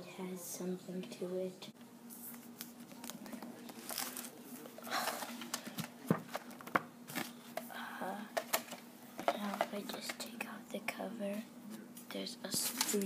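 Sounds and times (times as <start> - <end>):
faint steady hum: 0.0 - 13.0
book pages turning: 2.1 - 7.4, 12.5 - 13.0.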